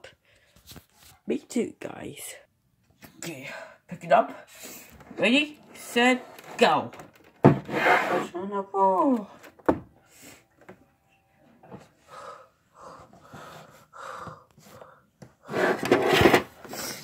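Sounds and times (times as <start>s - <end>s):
person breathing in puffs: 4.4s - 5.0s, 12.0s - 15.8s.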